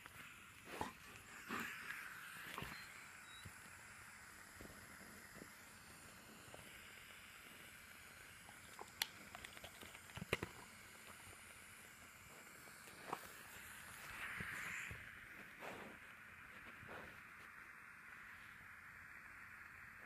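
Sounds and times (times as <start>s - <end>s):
faint hiss: 0.0s - 20.0s.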